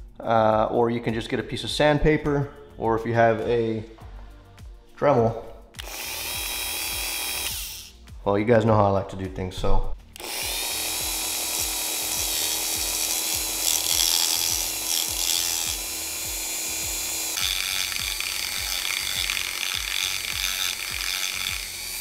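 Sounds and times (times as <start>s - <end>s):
rotary tool sanding propeller: 10.2s - 22.0s.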